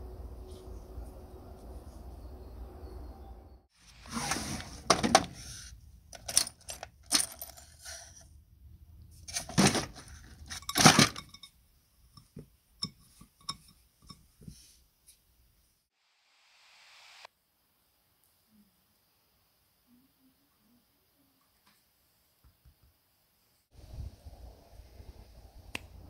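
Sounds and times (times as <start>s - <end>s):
plastic drawer pulled open: 4.0s - 5.4s
metal screws clinking and rattling: 6.1s - 8.2s, 9.3s - 11.6s.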